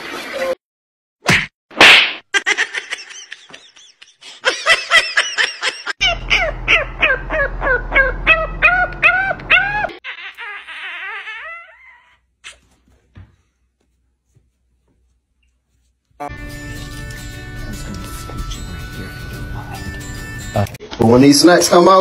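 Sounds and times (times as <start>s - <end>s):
puppy yipping: 6.0s - 12.7s
puppy whining: 6.0s - 12.8s.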